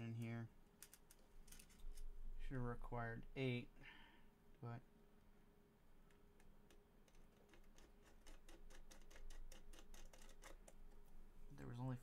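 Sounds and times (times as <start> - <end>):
small metal screws clicking: 0.8 - 2.0.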